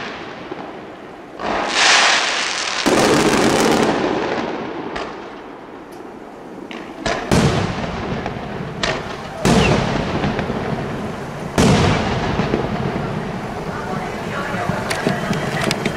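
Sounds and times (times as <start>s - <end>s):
small firework pops: 1.4s - 6.1s, 6.7s - 10.6s
firework shells bursting: 1.4s - 15.9s.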